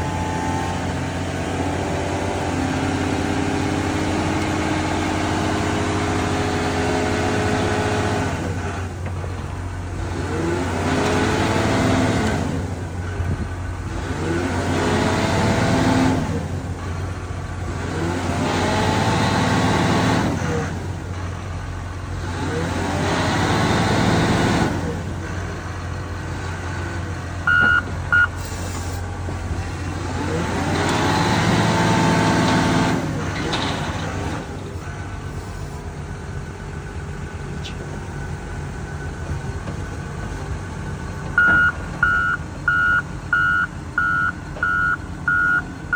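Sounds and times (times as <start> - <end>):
diesel loader engine revving: 0.0 - 45.9
reversing alarm beeping: 27.4 - 28.4, 41.4 - 45.9.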